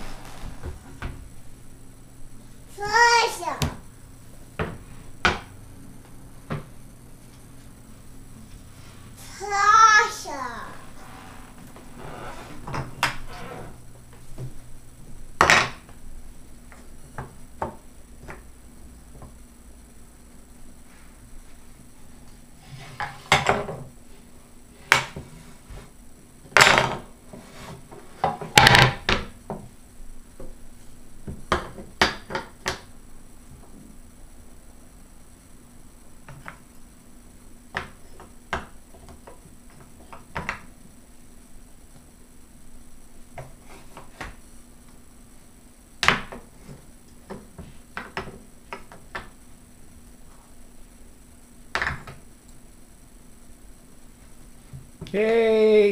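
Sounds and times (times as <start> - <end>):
wooden puzzle pieces knocking: 31.2 - 32.9.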